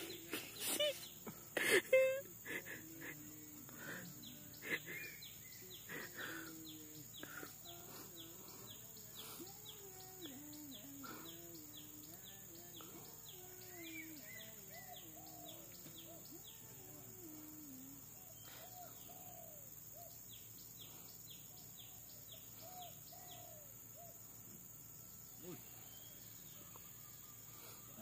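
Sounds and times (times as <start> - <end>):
bird chirping: 0.0 - 28.0
insect drone: 0.0 - 28.0.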